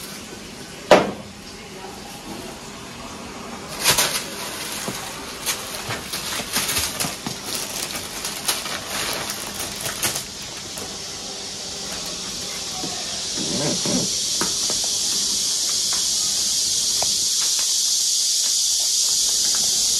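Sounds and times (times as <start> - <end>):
steady hiss: 0.0 - 19.9
plastic bags crinkling: 3.7 - 11.0.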